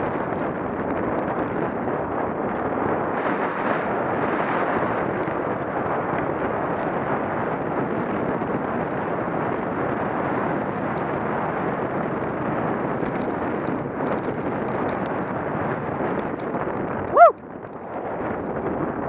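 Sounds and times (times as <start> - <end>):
small clicks from stones: 0.0 - 1.6, 13.0 - 15.4, 16.0 - 18.6
wind buffeting microphone: 0.0 - 19.0.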